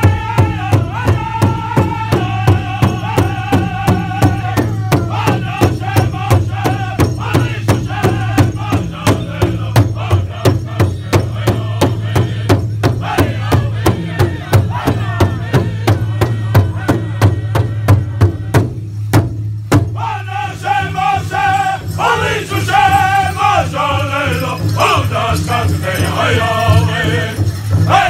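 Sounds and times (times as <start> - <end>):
high-pitched group singing: 0.0 - 18.6, 19.9 - 28.0
large hand drum beating: 0.0 - 20.1.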